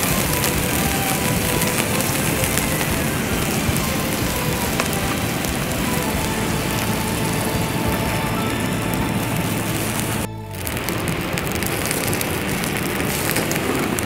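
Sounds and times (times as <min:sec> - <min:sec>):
fire crackling: 0:00.0 - 0:14.0
meat sizzling on a grill: 0:00.0 - 0:14.0.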